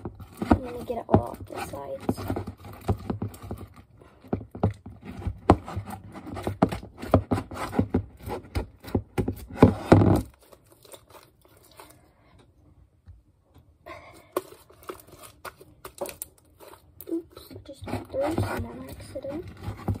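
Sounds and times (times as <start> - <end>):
hands squeezing sticky slime: 10.2 - 12.3, 14.2 - 18.3.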